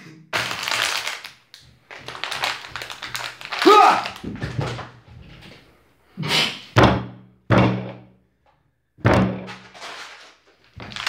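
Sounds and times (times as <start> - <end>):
heavy thuds of landing on floor: 4.2 - 5.5, 9.0 - 9.7.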